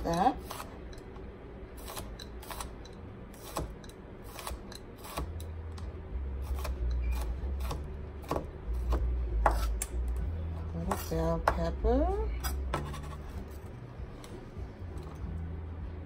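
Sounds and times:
knife chopping on cutting mat: 0:03.4 - 0:05.4, 0:06.4 - 0:10.0, 0:10.9 - 0:11.6, 0:12.4 - 0:13.3.

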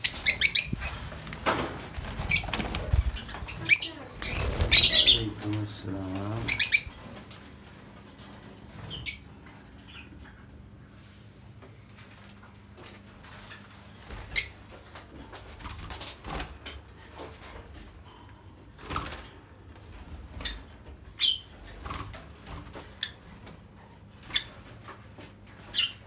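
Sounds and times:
lovebirds chirping shrilly: 0:00.0 - 0:01.0, 0:02.2 - 0:05.4, 0:06.4 - 0:07.0.

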